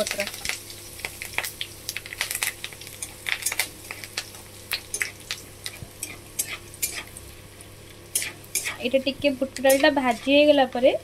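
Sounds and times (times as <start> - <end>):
seeds sizzling and popping in oil: 0.0 - 11.0
spatula stirring: 4.9 - 7.2, 8.1 - 10.6.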